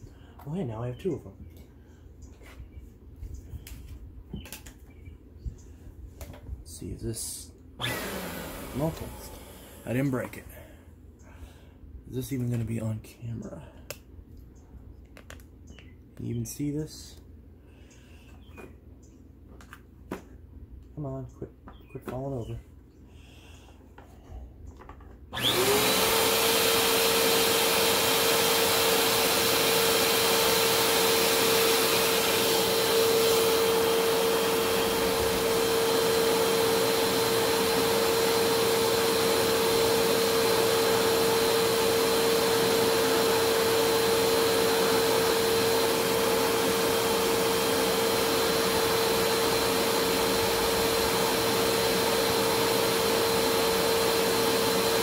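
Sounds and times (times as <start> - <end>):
vacuum motor running with whine: 7.8 - 10.4, 25.3 - 55.0.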